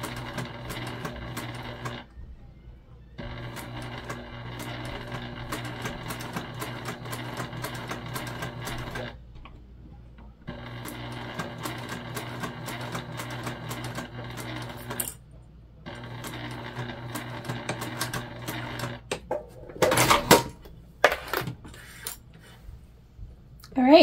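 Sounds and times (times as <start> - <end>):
sewing machine stitching: 0.0 - 2.1, 3.2 - 9.2, 10.5 - 15.2, 15.9 - 19.2.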